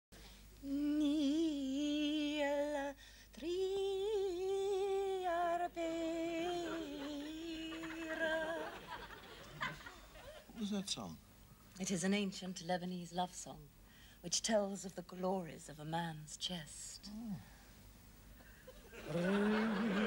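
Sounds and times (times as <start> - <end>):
woman humming a slow tune: 0.6 - 8.6.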